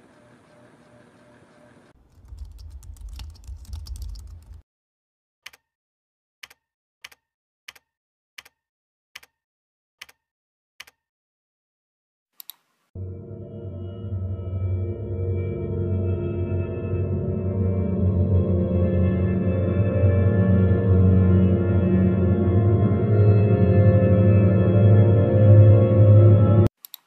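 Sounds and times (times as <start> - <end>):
laptop keyboard typing: 2.0 - 4.6
low rumble: 2.0 - 4.6
gong-like music tone: 13.0 - 26.7.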